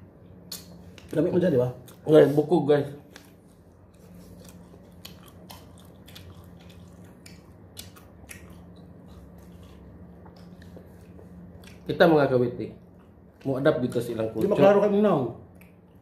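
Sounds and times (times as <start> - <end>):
steady low hum: 0.0 - 16.0
chewing smacks: 3.1 - 12.1, 15.4 - 16.0.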